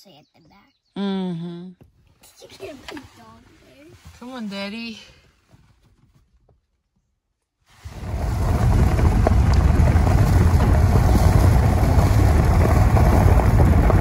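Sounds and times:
vehicle low rumble: 0:07.8 - 0:14.0
wind buffeting microphone: 0:07.8 - 0:14.0.

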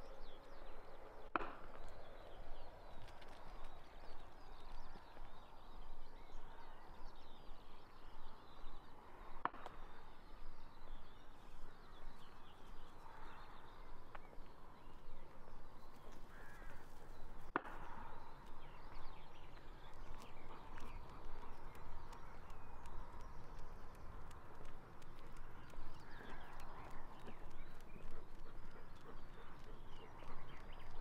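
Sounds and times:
birds singing: 0:00.0 - 0:31.0
footsteps on a path: 0:15.8 - 0:31.0
crow cawing: 0:16.2 - 0:17.1
sharp clicks: 0:19.6 - 0:31.0.

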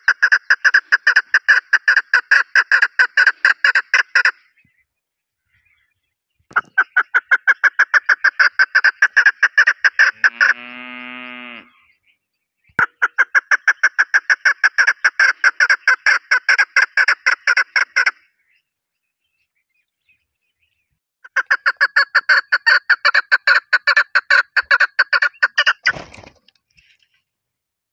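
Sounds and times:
partridge clucking calls: 0:00.0 - 0:04.4, 0:06.5 - 0:10.6, 0:12.7 - 0:18.3, 0:21.2 - 0:26.1.

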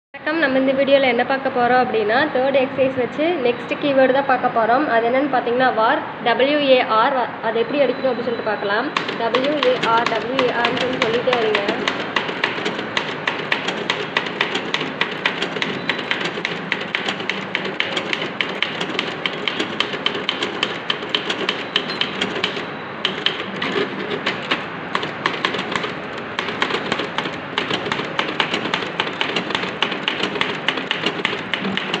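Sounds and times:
typewriter keys clacking: 0:08.9 - 0:32.0.

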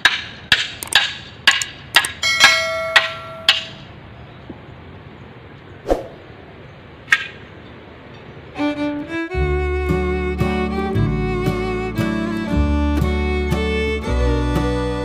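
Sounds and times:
hand tool knocking bamboo poles: 0:00.0 - 0:03.9.

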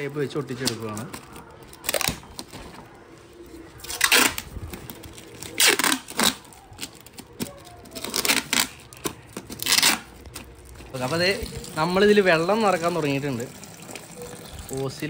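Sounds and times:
plastic sheet crinkling: 0:00.0 - 0:14.9
packing tape ripping off roll: 0:00.6 - 0:02.6, 0:03.8 - 0:11.4.

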